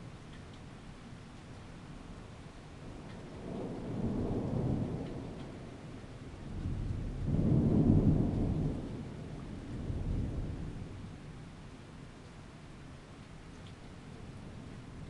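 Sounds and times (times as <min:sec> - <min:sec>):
rolling thunder: 0:02.8 - 0:11.2.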